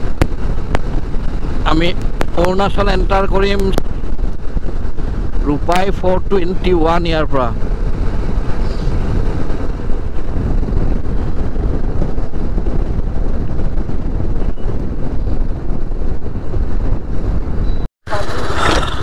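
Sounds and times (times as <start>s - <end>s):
road noise: 0.0s - 19.0s
wind buffeting microphone: 0.0s - 19.0s
motorcycle engine: 18.1s - 19.0s.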